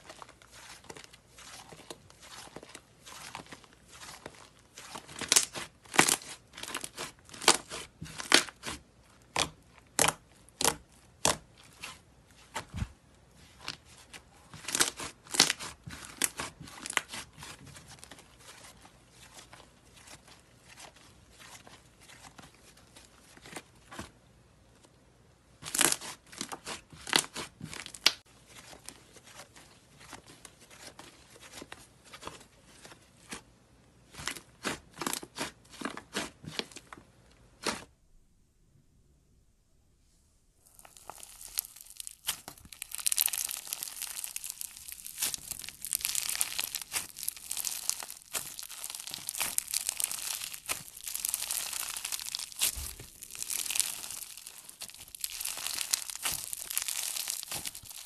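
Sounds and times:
slime crackling and popping: 0:00.0 - 0:11.4, 0:14.6 - 0:17.6, 0:40.6 - 0:58.0
slime squishing: 0:00.0 - 0:24.1, 0:40.6 - 0:58.0.

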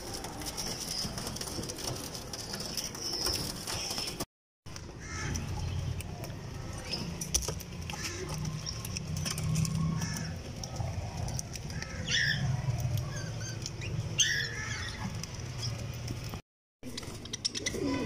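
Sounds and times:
clicks and rustles of birds: 0:00.0 - 0:18.0
pigeons cooing: 0:07.9 - 0:15.1, 0:17.2 - 0:18.0.

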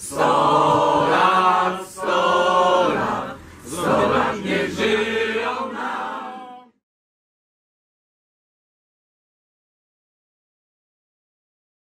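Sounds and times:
group singing in chorus: 0:00.0 - 0:06.8.

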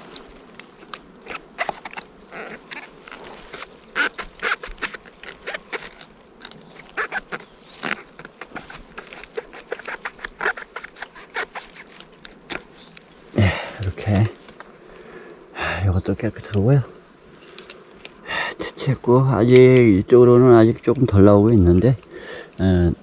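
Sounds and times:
mushrooms snapping off tree: 0:00.0 - 0:15.0.

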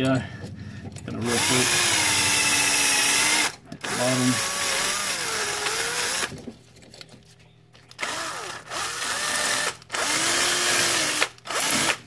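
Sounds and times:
cordless drill with wire brush: 0:01.2 - 0:06.3, 0:08.0 - 0:12.0.

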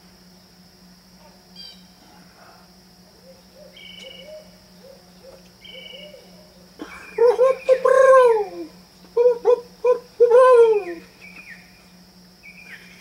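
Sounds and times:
steady high drone: 0:01.7 - 0:13.0
owl hooting: 0:03.1 - 0:11.7
songbird whistling: 0:03.6 - 0:06.5.

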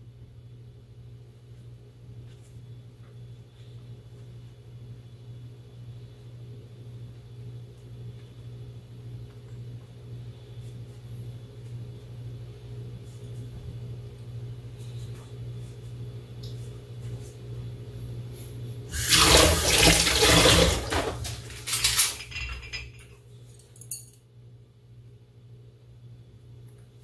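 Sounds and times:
steady low hum: 0:00.0 - 0:27.0
tap water gushing into sink: 0:18.9 - 0:22.4.

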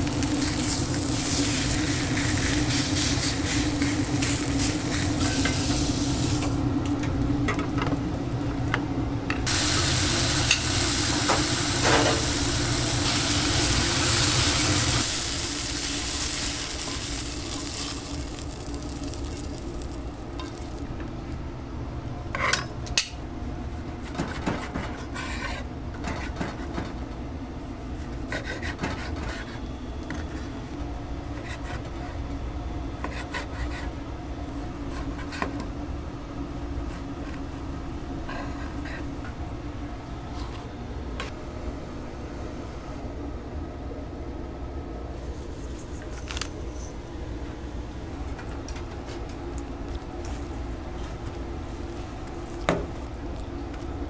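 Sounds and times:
steady hum: 0:00.0 - 0:25.9
fish sizzling in grill pan: 0:09.5 - 0:20.8.

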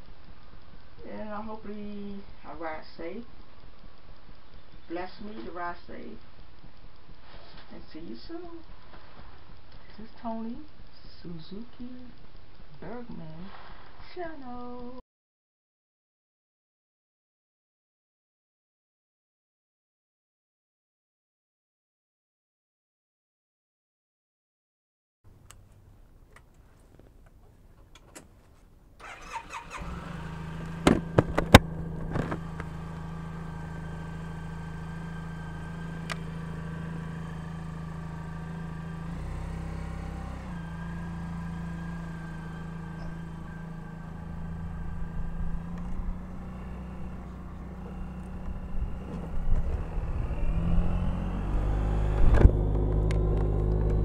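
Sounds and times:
scooter engine starting and idling: 0:29.0 - 0:54.0.

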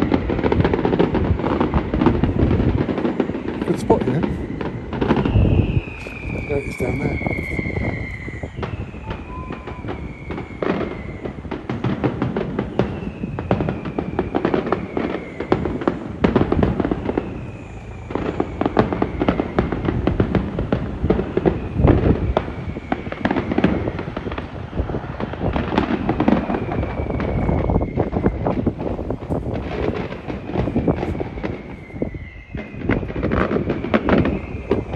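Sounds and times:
firecrackers crackling: 0:00.0 - 0:34.9
faint falling whistle: 0:05.2 - 0:11.3, 0:26.4 - 0:28.4, 0:30.7 - 0:32.9, 0:33.6 - 0:34.9.

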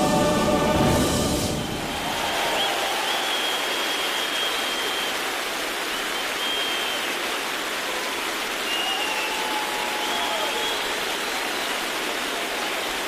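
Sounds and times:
long high whistles: 0:01.4 - 0:07.2, 0:08.6 - 0:11.1
audience applauding: 0:01.4 - 0:13.0.

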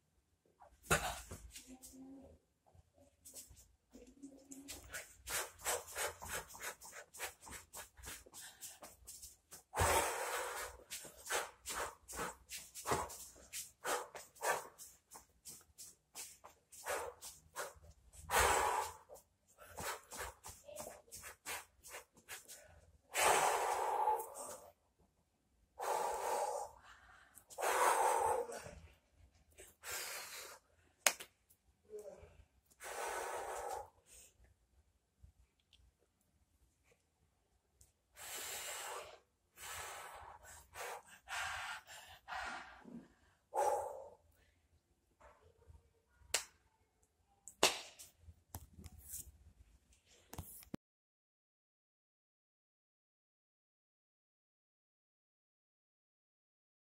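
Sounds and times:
person breathing out hard: 0:09.7 - 0:14.7, 0:18.3 - 0:20.3, 0:22.5 - 0:24.7, 0:25.8 - 0:28.9, 0:38.2 - 0:44.2.

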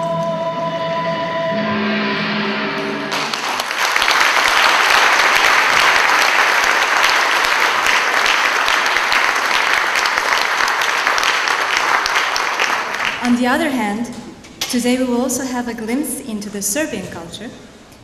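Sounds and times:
music: 0:00.0 - 0:03.6
audience applauding: 0:03.1 - 0:13.4.

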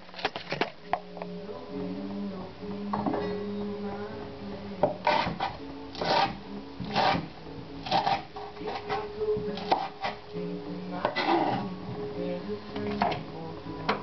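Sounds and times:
knife chopping on wooden board: 0:07.8 - 0:09.0, 0:09.6 - 0:10.2.

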